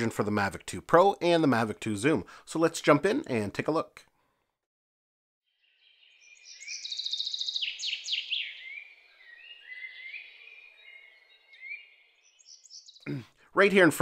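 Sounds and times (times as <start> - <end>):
songbirds singing: 5.5 - 13.2.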